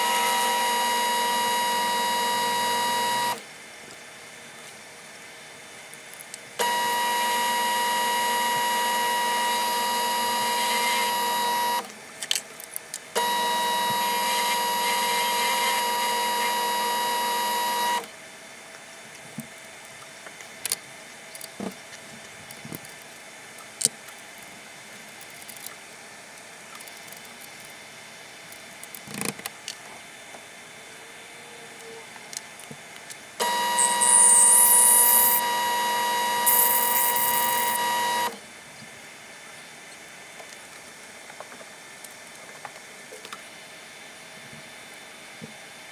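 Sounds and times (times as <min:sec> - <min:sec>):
lathe drilling whine: 0:00.0 - 0:03.4, 0:06.6 - 0:11.9, 0:13.2 - 0:18.0, 0:33.4 - 0:38.4.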